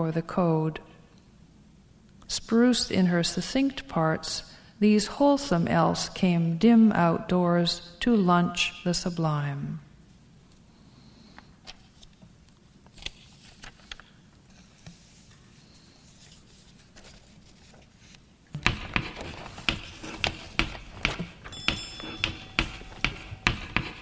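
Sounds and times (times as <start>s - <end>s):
sharp knocks: 18.6s - 24.0s.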